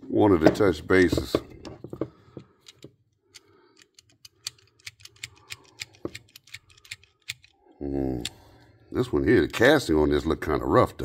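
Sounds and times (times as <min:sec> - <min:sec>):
metallic clicks of pliers: 0:02.6 - 0:07.6.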